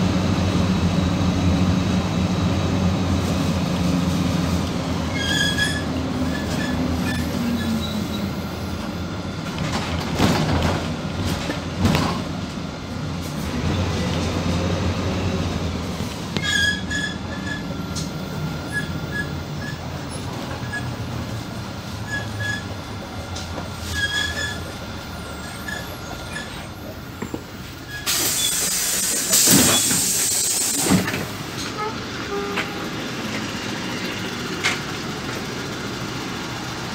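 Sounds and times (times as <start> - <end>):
bus engine droning: 0.0 - 36.9
brakes squeaking: 3.8 - 10.2, 15.8 - 35.7.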